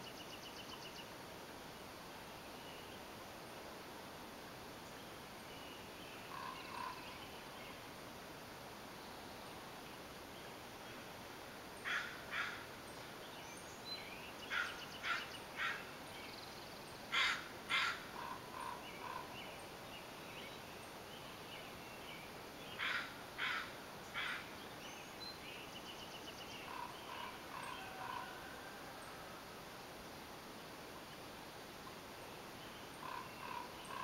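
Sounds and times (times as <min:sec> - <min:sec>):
songbird notes and trill: 0:00.0 - 0:01.2, 0:11.8 - 0:28.4
crow cawing: 0:11.8 - 0:12.6, 0:14.5 - 0:15.8, 0:17.1 - 0:19.3, 0:22.8 - 0:24.4, 0:33.0 - 0:34.0.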